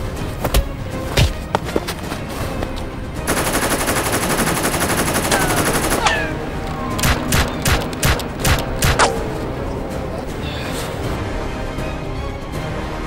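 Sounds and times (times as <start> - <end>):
automatic machine-gun fire: 3.3 - 6.0
gunshots: 7.0 - 9.2.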